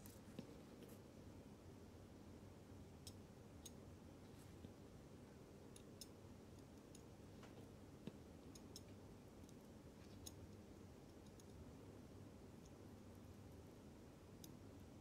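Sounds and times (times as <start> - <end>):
small tweezer clicks: 8.5 - 11.6.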